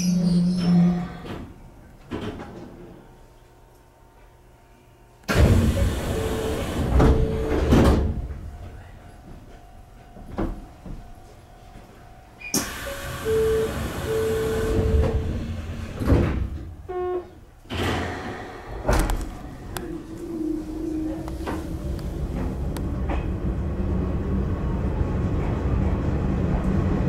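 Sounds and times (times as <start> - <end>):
train doors sliding: 5.3 - 8.8, 12.5 - 24.1.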